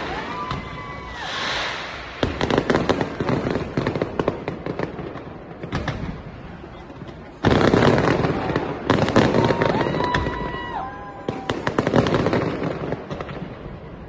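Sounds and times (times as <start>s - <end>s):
fireworks crackling and popping: 0.0s - 14.0s.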